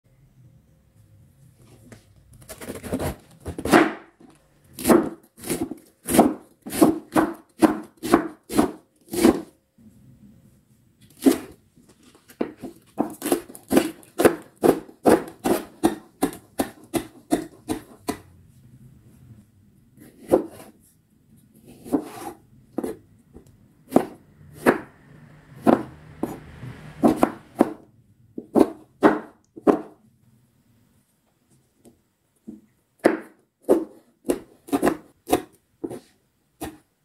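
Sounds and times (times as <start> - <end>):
knife slicing cabbage: 2.5 - 4.0, 4.7 - 9.5, 11.1 - 11.6, 12.6 - 18.2, 20.0 - 20.8, 21.6 - 23.0, 23.9 - 24.9, 28.4 - 29.9, 33.0 - 36.9
knife chopping spring onions: 2.8 - 4.1, 4.7 - 9.5, 11.1 - 11.6, 12.4 - 18.3, 20.0 - 20.8, 21.6 - 23.0, 23.8 - 24.9, 25.6 - 26.4, 27.0 - 27.8, 28.4 - 30.0, 33.0 - 36.9.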